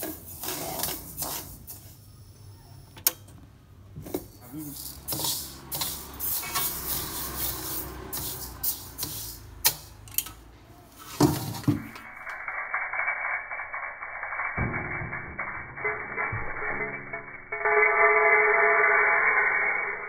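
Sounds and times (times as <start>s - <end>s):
metal spatula scraping seeds in wok: 4.6s - 9.9s.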